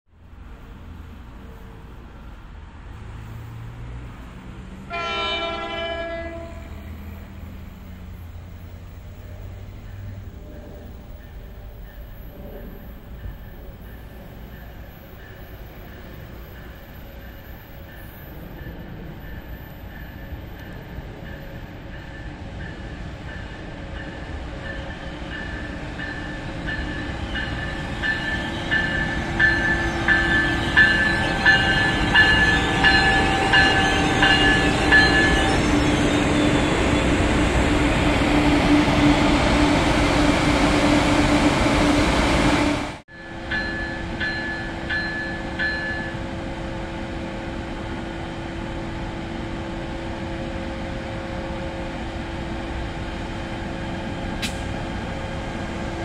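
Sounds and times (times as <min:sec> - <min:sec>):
train rumbling past: 0:00.2 - 0:56.0
train bell ringing: 0:11.0 - 0:37.2, 0:43.1 - 0:46.5.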